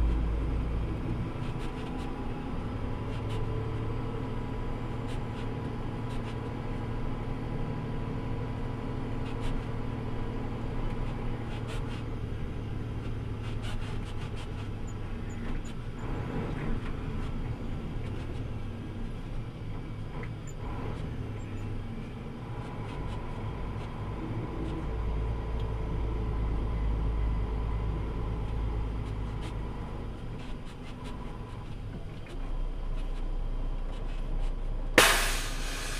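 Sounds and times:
tyre and road noise: 0.0 - 7.2, 8.6 - 35.9
truck engine running: 35.0 - 35.9.

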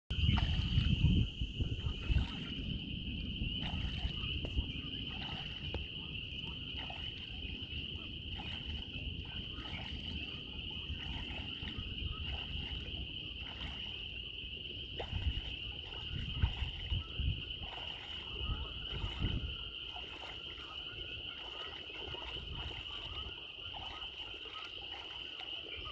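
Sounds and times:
low rumble: 0.1 - 19.9
chorus of frogs: 0.1 - 25.9
geese splashing in water: 0.2 - 25.9.

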